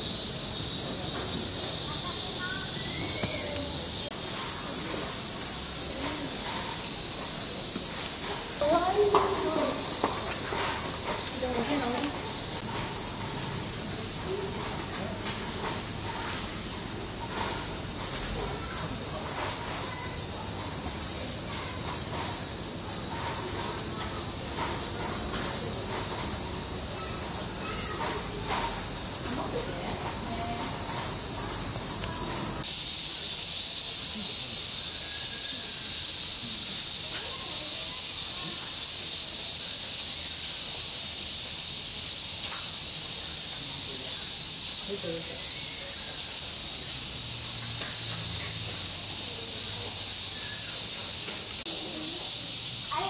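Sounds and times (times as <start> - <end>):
distant murmur: 0.0 - 32.6
cicadas droning: 0.0 - 53.0.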